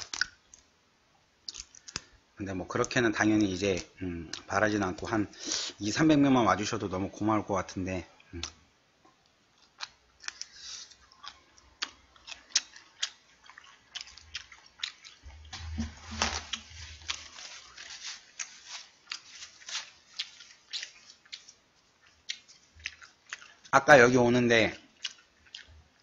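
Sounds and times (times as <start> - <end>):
chewing crunches: 1.5 - 2.1, 9.5 - 23.9, 24.5 - 26.0.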